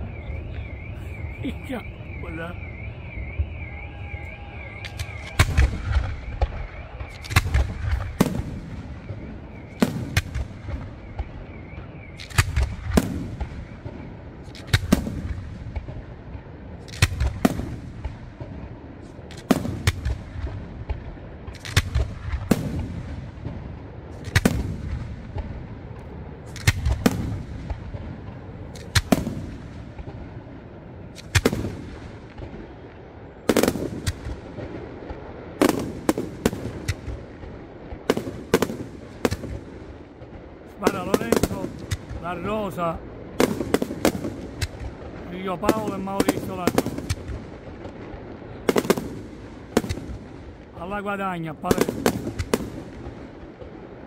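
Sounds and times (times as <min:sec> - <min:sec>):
fireworks booming with echo: 0:00.0 - 0:54.0.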